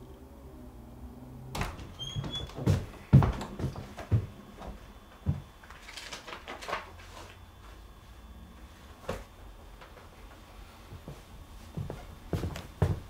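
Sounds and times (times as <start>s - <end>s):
paper rustling: 5.6s - 7.4s.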